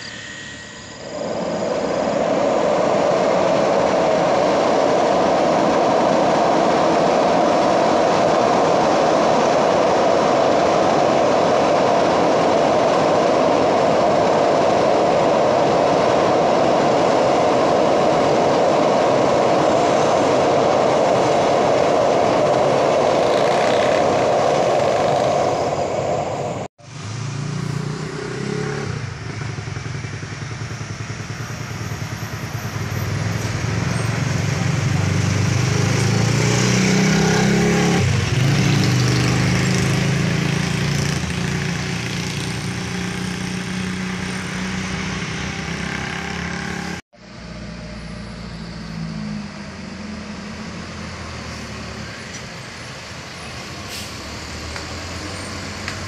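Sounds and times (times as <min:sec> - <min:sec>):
bus passing: 0:00.0 - 0:56.0
train crossing steel bridge: 0:00.0 - 0:56.0
trucks passing: 0:00.0 - 0:56.0
motorcycles passing: 0:21.6 - 0:52.3.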